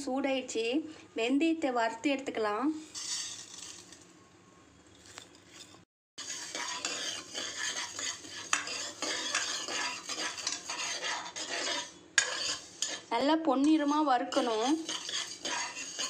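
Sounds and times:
ladle scraping and clinking pan: 3.0s - 4.0s, 5.0s - 16.0s
seeds hissing in hot pan: 6.2s - 13.1s, 13.9s - 16.0s.

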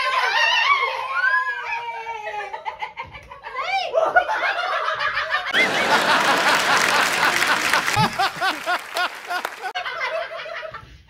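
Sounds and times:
people laughing: 2.0s - 11.0s
studio audience clapping: 5.5s - 9.8s
man laughing: 5.6s - 9.7s.

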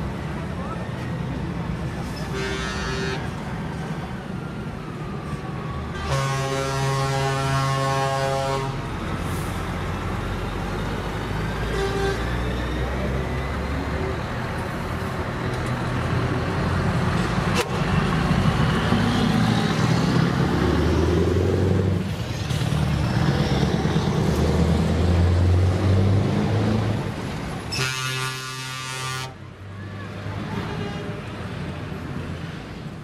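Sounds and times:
diesel truck engines rumbling: 0.0s - 33.0s
truck horn: 2.2s - 3.3s, 6.0s - 8.8s, 11.6s - 12.3s, 27.7s - 29.4s.

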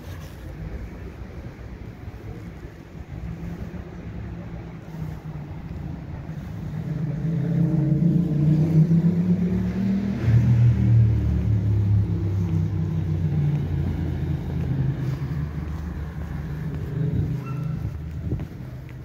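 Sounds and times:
car engine accelerating: 4.0s - 19.0s.

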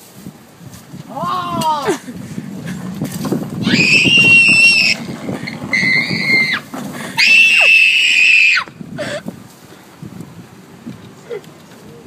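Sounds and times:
cart wheels rolling on asphalt: 0.0s - 12.0s
small child screaming: 3.6s - 5.0s, 7.2s - 8.7s.

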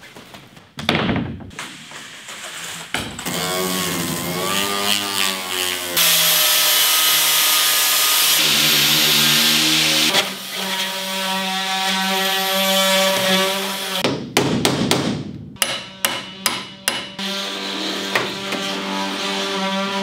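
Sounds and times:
hammer striking metal punch: 14.0s - 17.2s.

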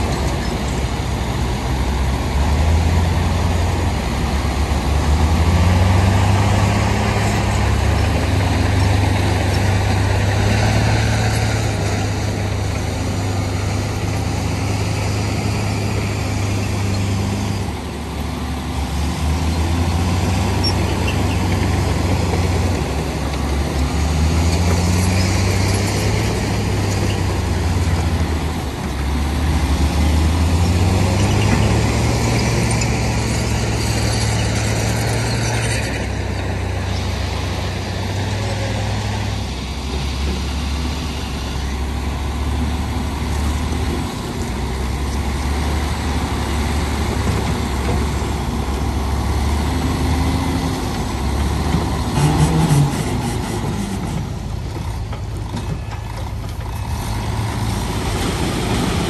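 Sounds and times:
heavy diesel engine revving: 0.0s - 55.0s, 56.3s - 59.0s.

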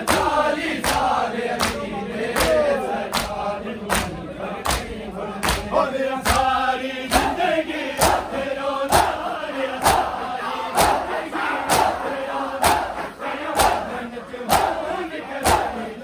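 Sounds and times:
men chanting in unison: 0.0s - 16.0s
hands beating chests: 10.8s - 11.1s, 12.6s - 12.9s.

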